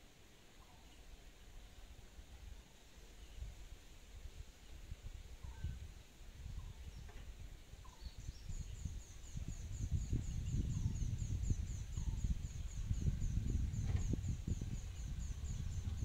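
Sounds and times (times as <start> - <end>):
low rumbling noise: 8.8 - 16.0.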